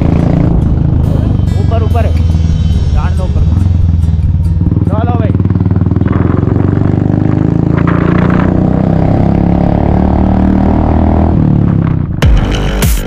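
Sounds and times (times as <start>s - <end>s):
music: 0.0s - 5.7s, 12.2s - 13.0s
motorcycle engine running: 0.0s - 12.9s.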